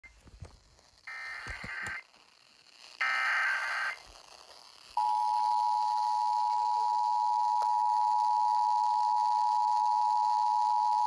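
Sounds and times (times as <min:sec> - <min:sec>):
digital data bursts from radio: 0:01.0 - 0:04.3.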